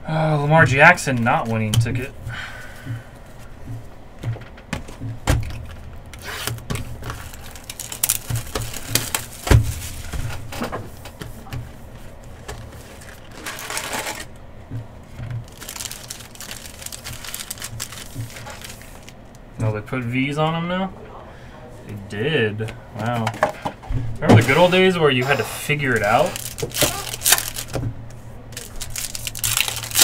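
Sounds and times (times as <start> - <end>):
foil wrappers crinkling: 5.4 - 11.2, 12.1 - 14.4, 15.2 - 19.4, 24.4 - 27.8, 28.5 - 30.0.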